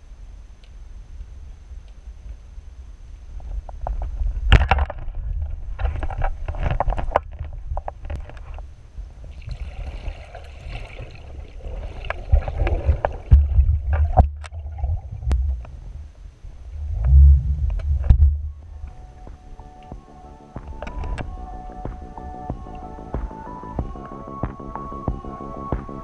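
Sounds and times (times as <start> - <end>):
low rumble of moving water: 0.0 - 20.1
sharp clicks and crackles: 3.7 - 8.7.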